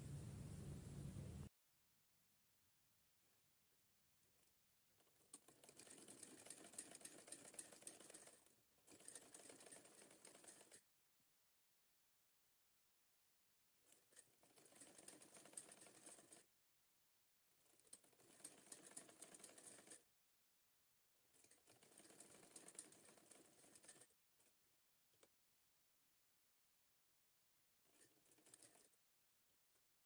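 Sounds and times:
sewing machine stitching: 4.3s - 10.9s, 13.8s - 16.5s, 17.5s - 20.1s, 21.2s - 25.3s, 27.8s - 29.0s.

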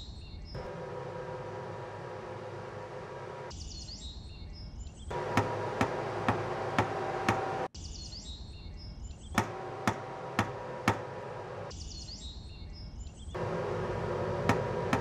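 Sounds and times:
high bird chirping: 3.5s - 6.6s, 7.8s - 13.4s
sharp regular knocks: 9.4s - 11.7s.

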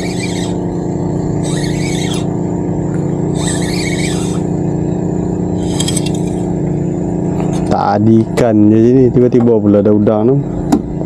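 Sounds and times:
high-pitched chirring: 0.0s - 2.4s, 3.2s - 4.8s, 5.4s - 6.5s
small engine running: 0.0s - 9.2s.

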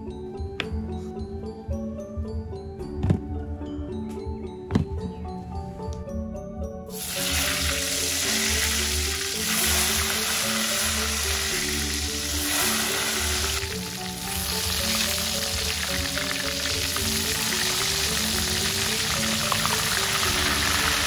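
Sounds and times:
slices frying in hot oil: 6.9s - 21.0s.

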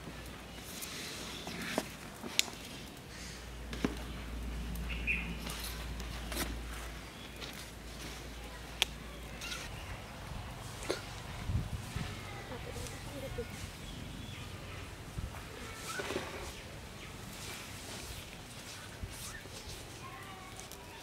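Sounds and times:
leaf fanning air rumbling: 0.0s - 21.0s
bird chirp: 4.0s - 5.8s.

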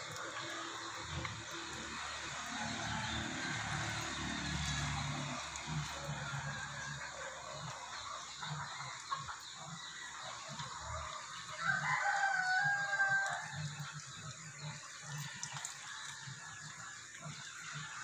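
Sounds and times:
rooster crowing: 11.6s - 13.7s.

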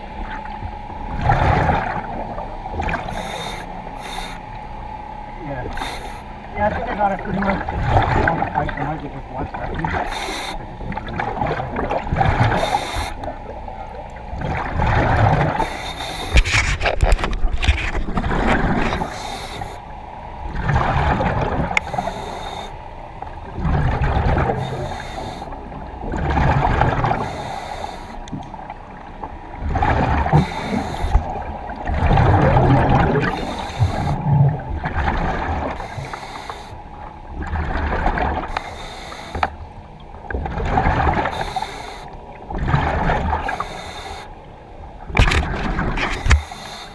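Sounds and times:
exhaust bubbles underwater: 1.1s - 3.3s, 6.5s - 15.7s, 20.4s - 22.3s, 23.4s - 27.6s, 28.6s - 36.2s, 37.2s - 38.6s, 39.4s - 43.8s
diver breathing through regulator: 2.9s - 4.5s, 5.7s - 6.4s, 10.0s - 10.7s, 12.5s - 13.3s, 15.3s - 19.9s, 21.7s - 22.8s, 24.4s - 25.6s, 27.1s - 28.2s, 30.2s - 31.3s, 33.2s - 34.4s, 35.7s - 36.9s, 38.5s - 39.6s, 41.2s - 42.2s, 43.3s - 44.4s, 46.0s - 46.9s.

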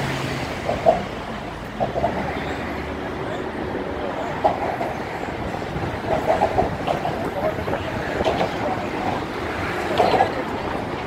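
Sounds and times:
crowd chatter: 0.0s - 11.0s
traffic rumble and clatter: 0.0s - 11.0s.

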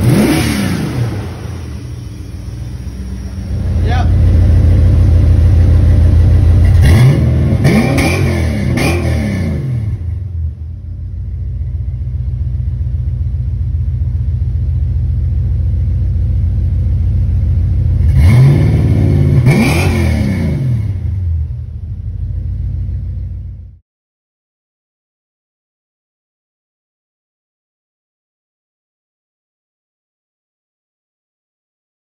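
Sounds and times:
vee eight engine idling and revving: 0.0s - 23.7s.

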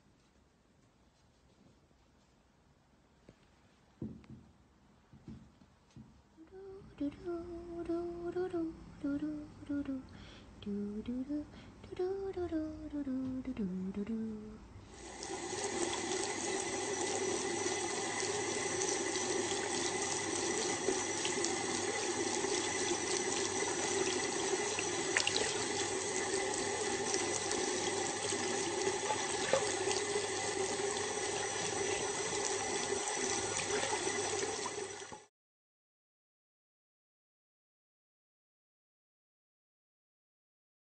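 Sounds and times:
tap water running into sink: 15.0s - 35.3s.

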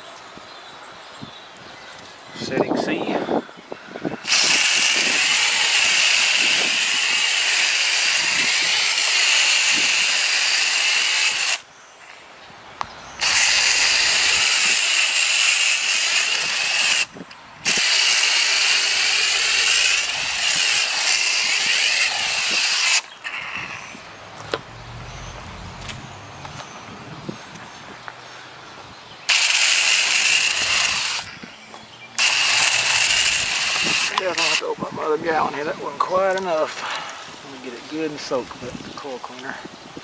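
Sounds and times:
spray wand hissing: 4.3s - 11.6s, 13.2s - 17.1s, 17.7s - 23.6s, 29.3s - 31.3s, 32.2s - 34.6s.

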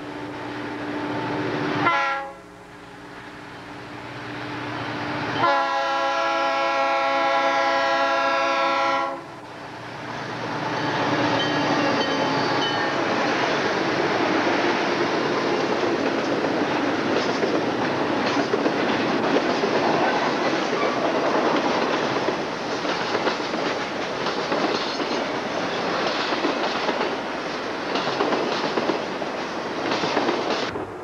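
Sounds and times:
freight train rumbling past: 0.0s - 31.0s
steel wheels clicking on rails: 10.4s - 30.8s.

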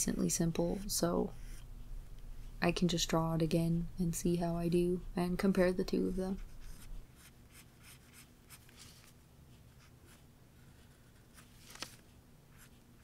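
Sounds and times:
pencil scratching on paper: 1.3s - 1.7s, 6.0s - 8.8s.

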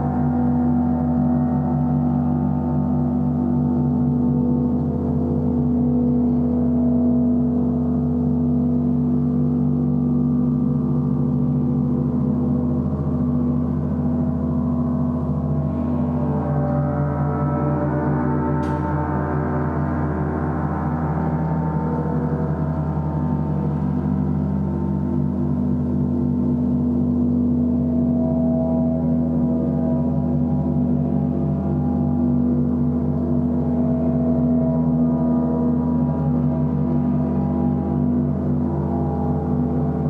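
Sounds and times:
gong drone: 0.0s - 40.0s
small sharp click: 18.6s - 18.9s.

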